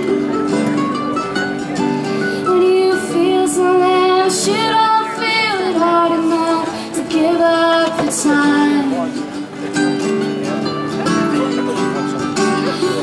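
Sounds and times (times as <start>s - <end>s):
plucked string instrument: 0.0s - 13.0s
strummed acoustic guitar: 0.0s - 13.0s
woman singing: 2.4s - 9.2s.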